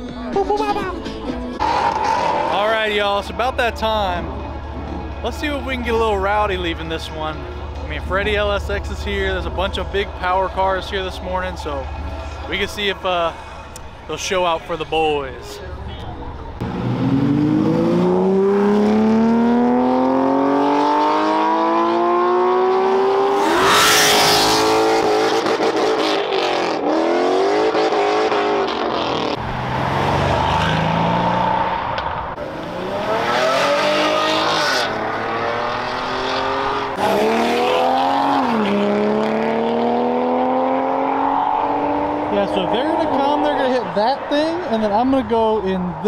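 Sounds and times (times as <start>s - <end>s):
sports cars accelerating: 16.3s - 44.7s.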